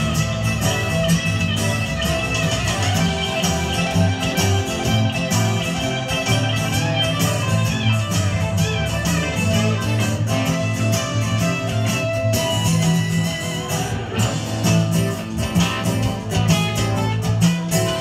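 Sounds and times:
acoustic guitar: 0:00.0 - 0:18.0
bass guitar: 0:00.0 - 0:18.0
electric guitar: 0:00.0 - 0:18.0
steady drum beat: 0:00.0 - 0:18.0.

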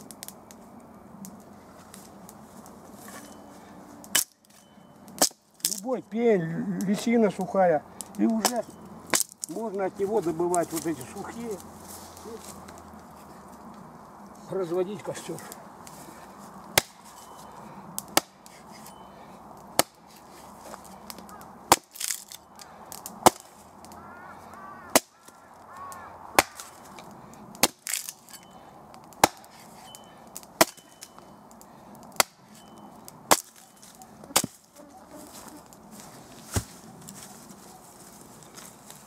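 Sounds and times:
hatchet chopping dry wood: 0:05.2 - 0:05.8, 0:16.7 - 0:17.2, 0:18.0 - 0:19.0, 0:19.7 - 0:20.2, 0:21.1 - 0:23.6, 0:24.9 - 0:25.1, 0:26.4 - 0:26.8, 0:27.6 - 0:28.4, 0:29.0 - 0:31.1, 0:32.1 - 0:32.7, 0:33.3 - 0:33.7, 0:34.3 - 0:34.6.

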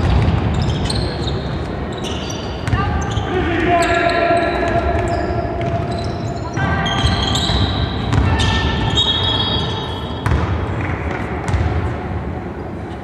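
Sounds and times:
sneakers squeaking on floor: 0:00.0 - 0:11.7
echoing hall noise: 0:00.0 - 0:13.0
basketball bouncing on floor: 0:06.9 - 0:08.6, 0:10.2 - 0:11.8.

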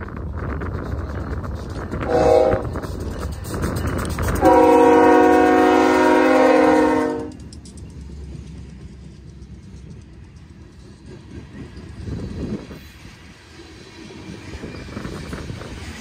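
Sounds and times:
train rumbling on rails: 0:00.0 - 0:16.0
locomotive air horn blast: 0:02.0 - 0:02.8, 0:04.4 - 0:07.4.

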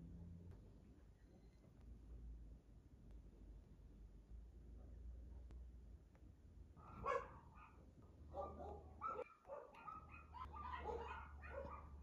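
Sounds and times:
dog barking and yipping: 0:06.8 - 0:07.8, 0:08.4 - 0:12.0.

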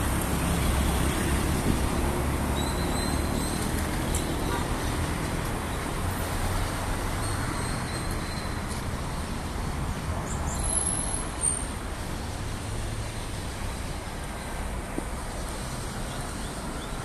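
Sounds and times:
city street traffic rumble: 0:00.0 - 0:17.0.

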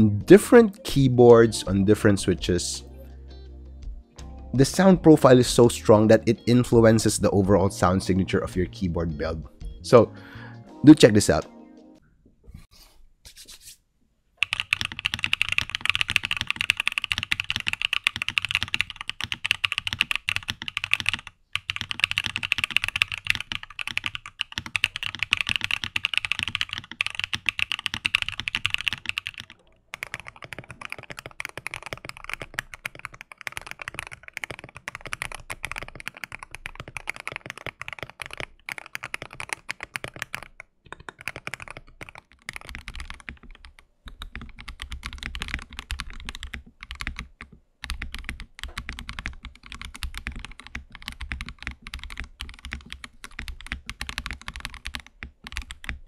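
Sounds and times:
fast typing on mechanical keyboards: 0:14.4 - 0:56.0.

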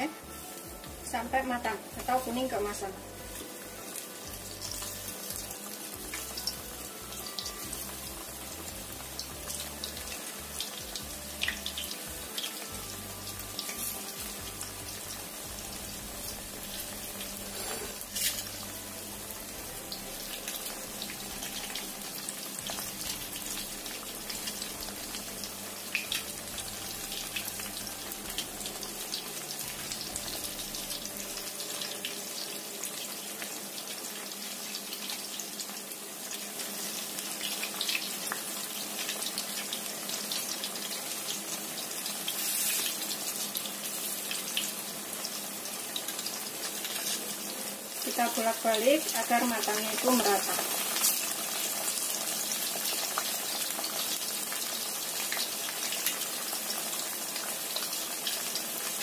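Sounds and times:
food sizzling in hot oil: 0:00.0 - 0:59.0.

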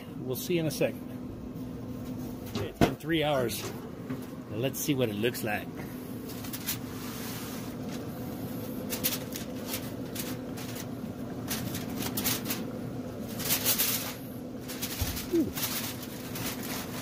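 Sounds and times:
grill fan humming: 0:00.0 - 0:17.0
aluminium foil crinkling: 0:06.2 - 0:17.0.

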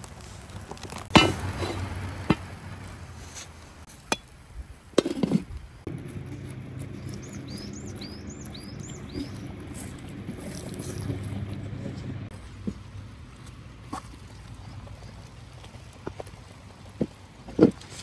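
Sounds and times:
small bird chirping: 0:05.9 - 0:12.3.

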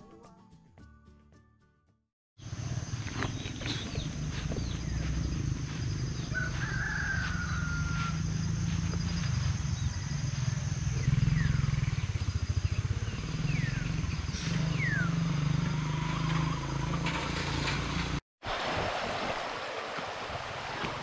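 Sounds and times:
low motor drone: 0:02.4 - 0:06.4.

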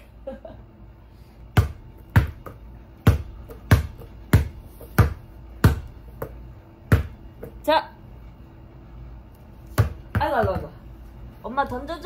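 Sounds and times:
ball bouncing on hard floor: 0:01.5 - 0:07.7, 0:09.7 - 0:10.8.

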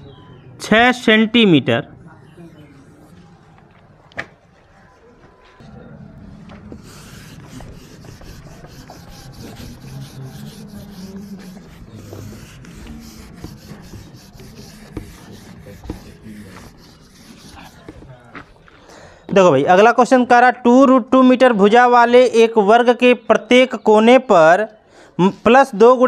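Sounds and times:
eraser scrubbing whiteboard: 0:06.7 - 0:18.2.

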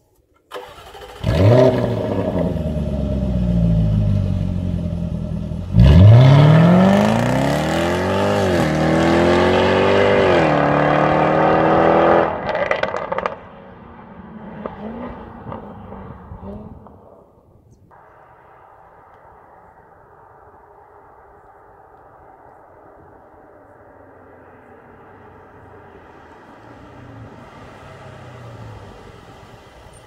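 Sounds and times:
car engine revving and accelerating: 0:00.7 - 0:16.8, 0:24.6 - 0:30.0.

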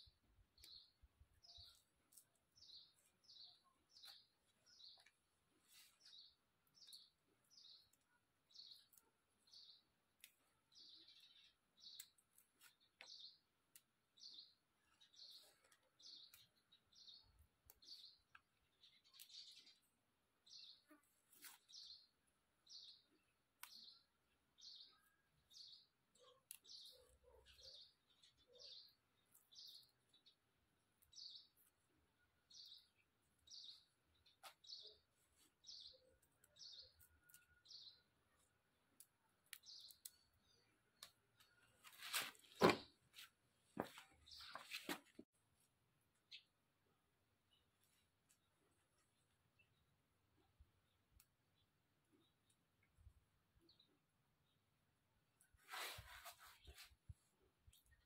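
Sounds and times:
faint high bird chirps: 0:00.0 - 0:30.4, 0:31.0 - 0:42.8
greens rustling in basket: 0:41.8 - 0:42.9.

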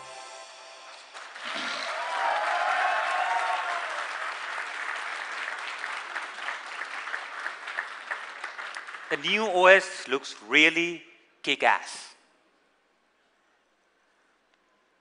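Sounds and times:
audience applauding: 0:00.9 - 0:09.6.

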